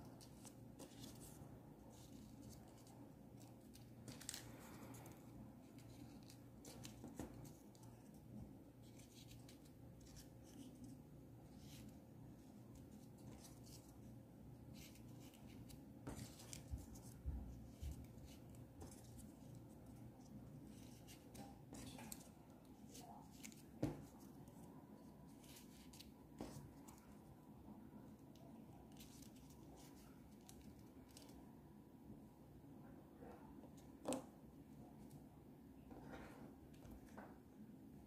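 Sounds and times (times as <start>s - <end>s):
room hum: 0.0s - 38.0s
paper rustling and clicking: 0.1s - 11.0s.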